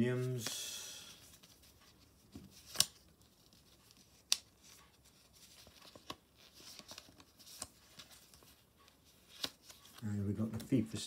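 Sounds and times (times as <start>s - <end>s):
stickers clicking and rustling: 1.8s - 10.9s
paper snap: 2.6s - 3.0s.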